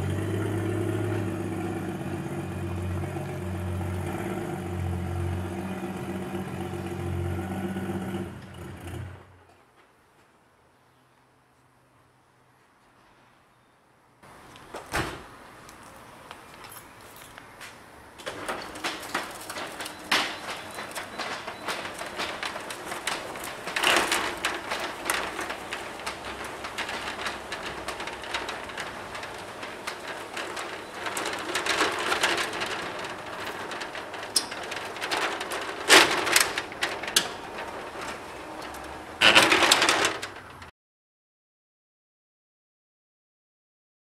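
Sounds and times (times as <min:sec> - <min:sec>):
metal roller shutter rattling: 0:00.0 - 0:09.6, 0:18.2 - 0:40.7.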